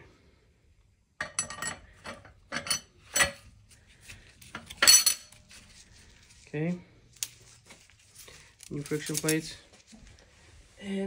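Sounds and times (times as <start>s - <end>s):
metal plates clinking and clattering: 1.2s - 3.5s, 4.5s - 5.4s.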